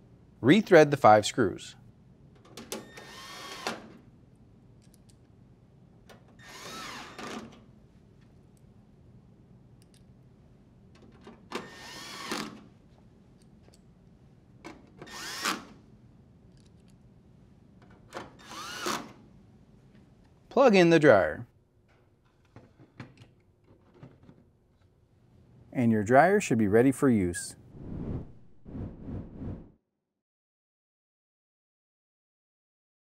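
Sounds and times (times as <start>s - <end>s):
cordless drill driving screws: 2.9s - 3.8s, 6.4s - 7.4s, 11.6s - 12.6s, 15.0s - 15.7s, 18.4s - 19.1s.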